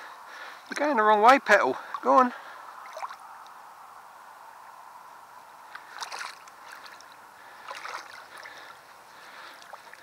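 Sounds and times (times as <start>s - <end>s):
shallow water sloshing and splashing: 2.8s - 3.4s, 5.7s - 10.0s.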